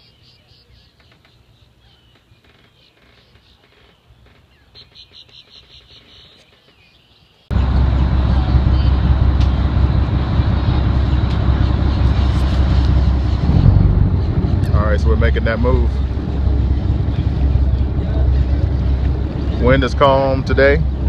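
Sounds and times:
boat engine running: 7.5 - 21.0.

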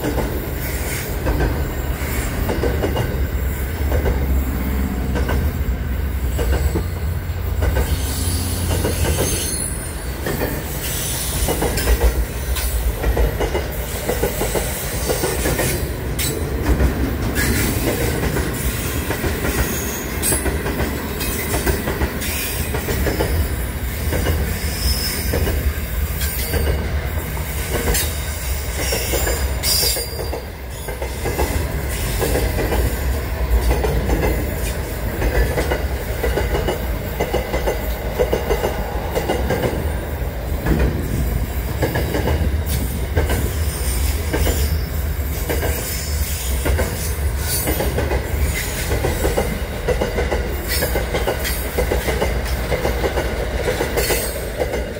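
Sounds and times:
train wheels rumbling and rattling: 0.0 - 54.9
high-pitched wheel squeals: 7.8 - 11.5.

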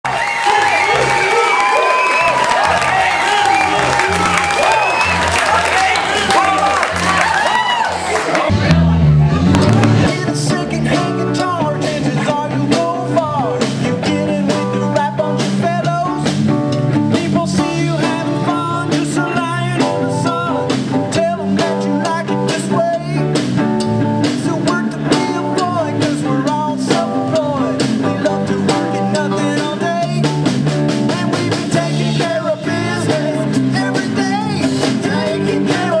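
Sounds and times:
drums: 0.0 - 36.0
blues band playing live: 0.1 - 36.0
person singing: 8.4 - 16.4, 17.1 - 23.4, 24.2 - 36.0.

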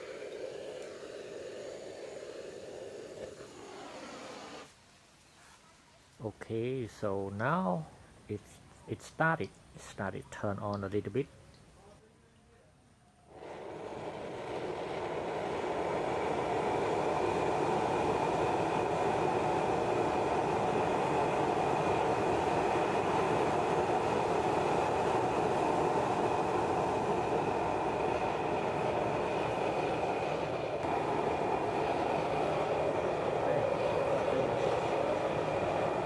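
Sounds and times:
oil burner stove roaring: 0.0 - 4.7, 13.3 - 36.0
faint high whine: 0.0 - 4.8, 13.2 - 36.0.

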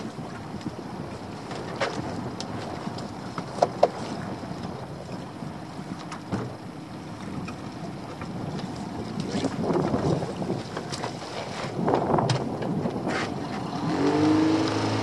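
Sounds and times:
water lapping around boat: 0.0 - 15.0
wind: 0.0 - 15.0
sharp knocks on boat: 6.0 - 6.6, 10.7 - 13.3.

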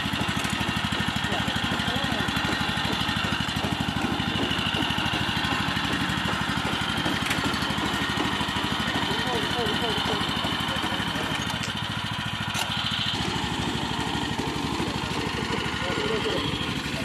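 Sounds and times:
small engine putter: 0.0 - 17.0
faint voices: 1.1 - 3.3, 14.9 - 17.0.

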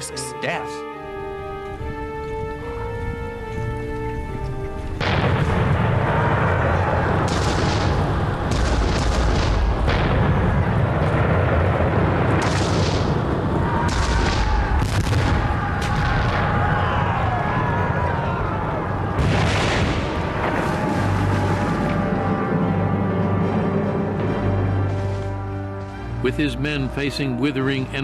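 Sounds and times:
cannon fire rumble: 4.9 - 22.8
musket shots: 12.3 - 16.0.

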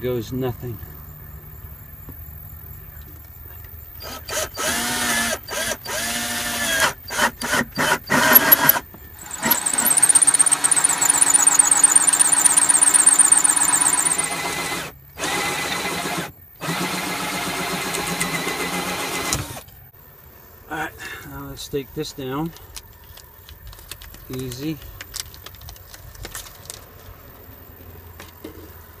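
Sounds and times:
cordless drill cutting wood: 4.0 - 19.6.

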